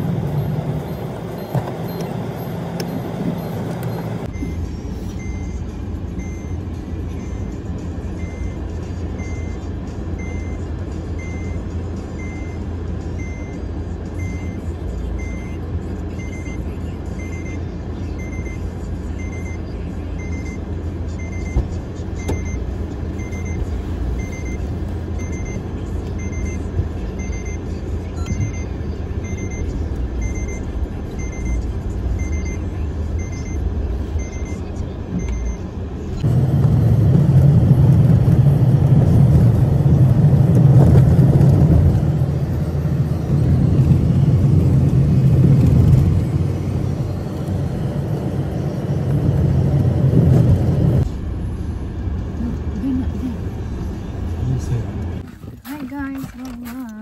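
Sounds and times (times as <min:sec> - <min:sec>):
car warning chime beeping: 0:00.0 - 0:15.6, 0:16.2 - 0:35.8
car driving off with road noise: 0:00.0 - 0:55.6.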